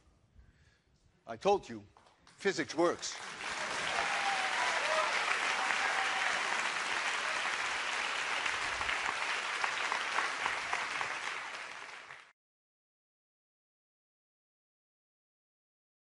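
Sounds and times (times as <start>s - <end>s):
audience applauding: 2.9s - 12.3s.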